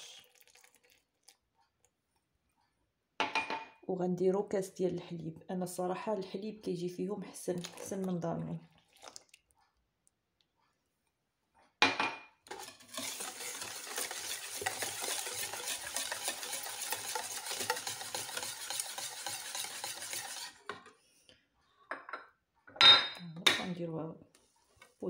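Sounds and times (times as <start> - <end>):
whisk scraping a bowl: 12.5 - 20.7.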